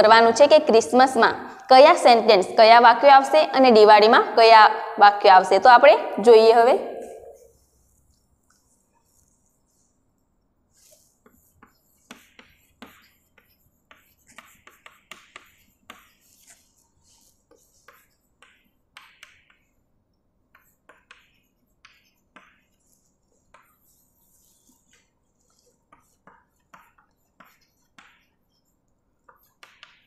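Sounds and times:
chalk tapping and scratching on blackboard: 7.3 - 30.0.

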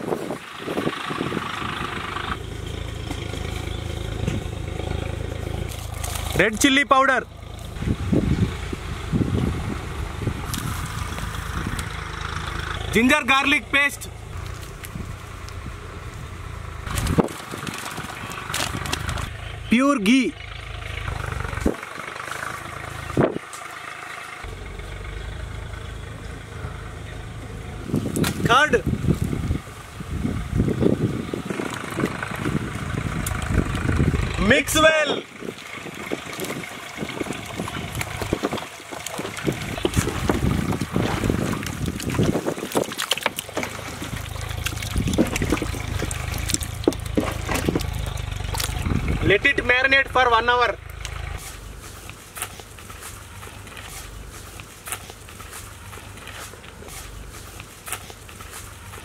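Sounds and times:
low steady rumble: 0.0 - 59.0
low motor-like hum: 0.4 - 6.4, 7.2 - 19.7, 20.3 - 42.4, 43.2 - 59.0
hands squelching raw chicken: 35.6 - 48.9.

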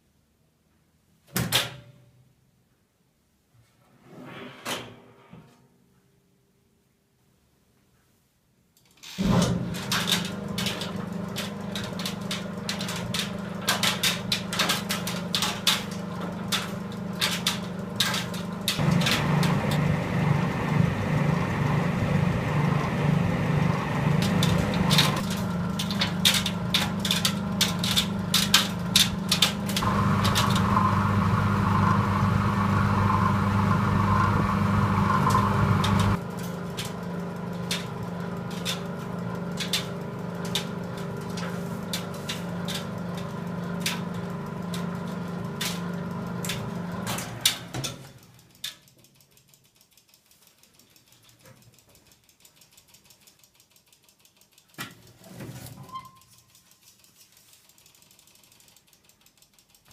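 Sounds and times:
tumble dryer motor hum: 9.2 - 48.4.

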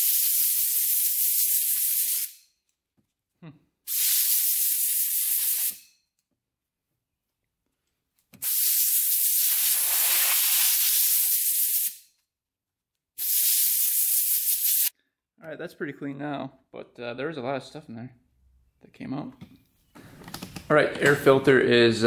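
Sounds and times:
compressed air blow gun hissing: 0.0 - 2.3, 3.9 - 5.8, 8.4 - 12.0, 13.2 - 14.9.

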